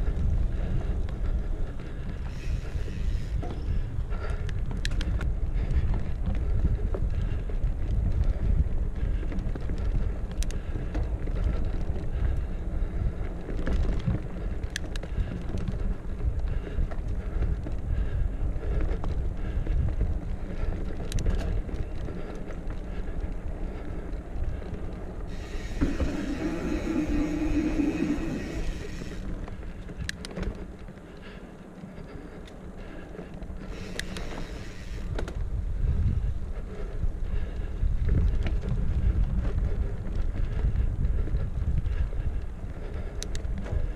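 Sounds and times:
tyres rumbling on dirt trail: 0.0s - 43.9s
wind buffeting microphone: 0.0s - 43.9s
steady buzzing tone: 2.3s - 3.9s, 25.3s - 29.4s
sharp clicks: 33.8s - 35.3s.

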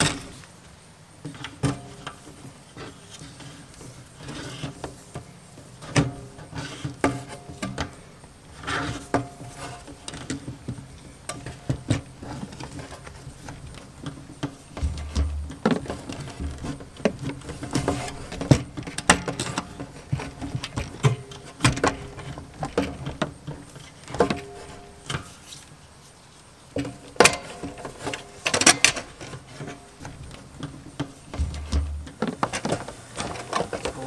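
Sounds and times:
cables rubbing and knocking metal box: 11.4s - 25.6s, 26.8s - 34.0s.

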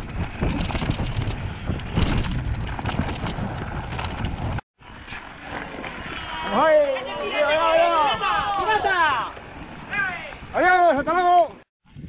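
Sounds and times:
wind buffeting microphone: 0.0s - 4.6s
bike rattling over stones: 0.0s - 7.0s.

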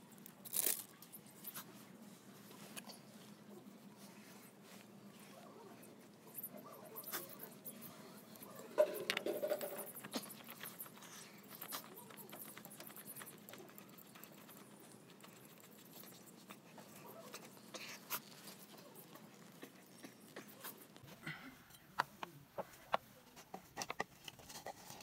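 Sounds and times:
oil filter clicks and scrapes: 8.8s - 10.5s, 22.9s - 25.0s.

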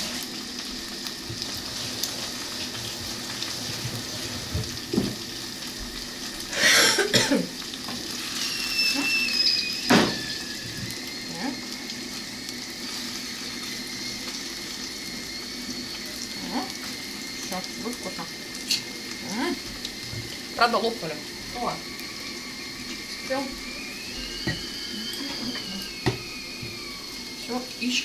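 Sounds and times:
sausages and eggs sizzling in pan: 0.0s - 28.0s
high squeal from sausages: 8.0s - 11.9s, 21.6s - 28.0s
burst of noise: 8.2s - 11.0s.

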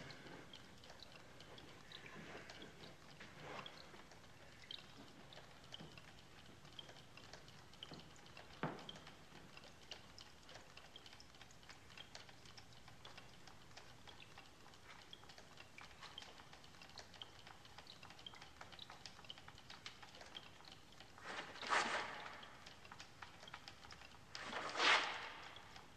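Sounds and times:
faint irregular clicking: 0.0s - 25.9s.

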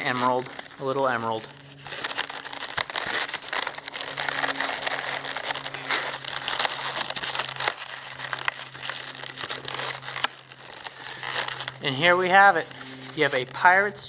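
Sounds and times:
balloons rubbing and squeezing: 0.0s - 14.0s.

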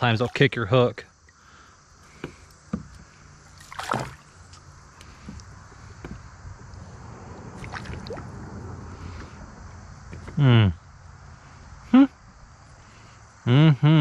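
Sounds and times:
fish splashing and thrashing: 3.4s - 5.3s, 7.6s - 8.4s
steady low rumble: 5.4s - 10.1s.

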